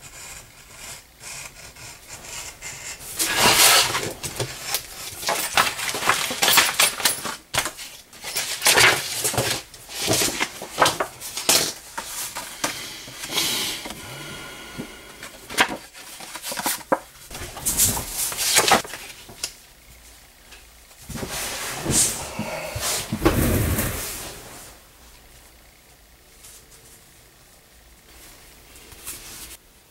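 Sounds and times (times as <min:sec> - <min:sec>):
paper rustling and crinkling: 0:03.1 - 0:12.6, 0:15.5 - 0:19.5.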